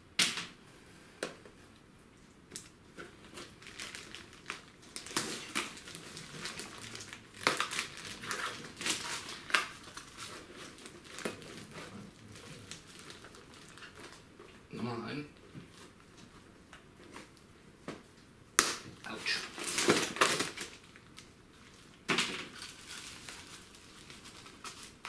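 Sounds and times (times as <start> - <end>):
plastic film crinkling: 2.6 - 14.4, 19.0 - 25.0.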